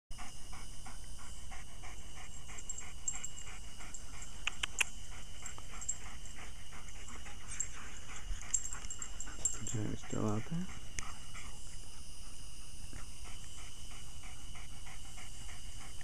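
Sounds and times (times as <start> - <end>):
dog panting: 0.1 - 16.0
sharp clicks: 4.4 - 5.7.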